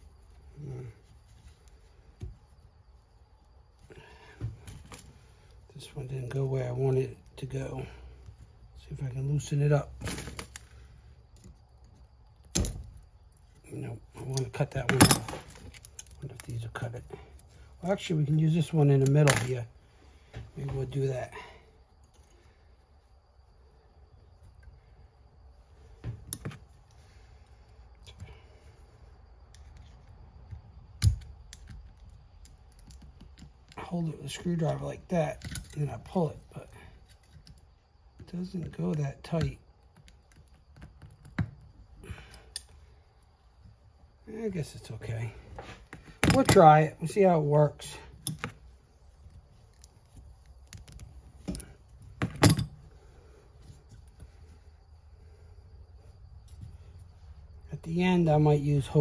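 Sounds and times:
metal tie clicking with pliers: 0:14.2 - 0:16.6, 0:34.6 - 0:36.0, 0:42.3 - 0:42.8, 0:48.2 - 0:48.6, 0:49.7 - 0:51.7.

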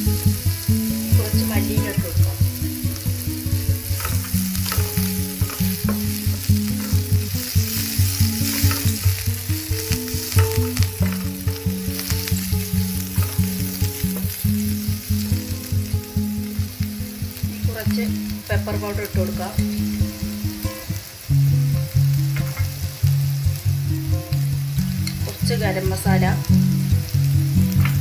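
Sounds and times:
music with steady beat: 0:00.0 - 0:28.0
onions sizzling in oil: 0:00.0 - 0:28.0
spatula scraping pan: 0:03.8 - 0:12.4.

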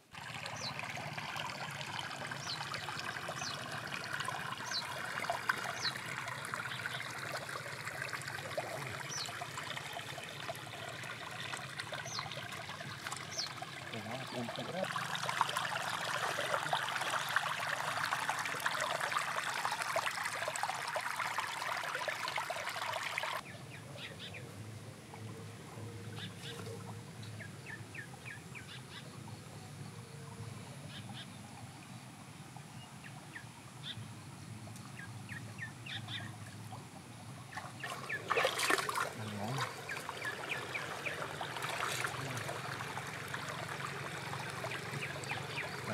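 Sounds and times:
stream water rushing and splashing: 0:00.0 - 0:23.5, 0:34.9 - 0:45.9
stream trickling: 0:00.0 - 0:45.9
birds chirping: 0:00.4 - 0:01.0, 0:02.2 - 0:18.0, 0:37.4 - 0:45.9.

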